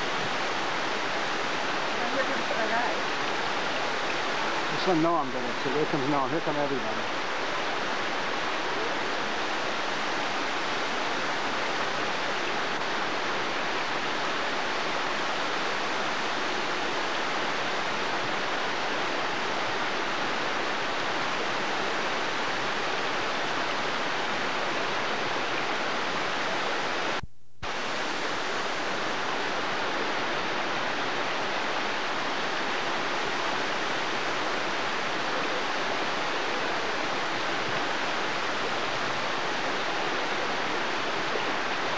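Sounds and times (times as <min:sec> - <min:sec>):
water rushing down rocks: 0:00.0 - 0:41.9.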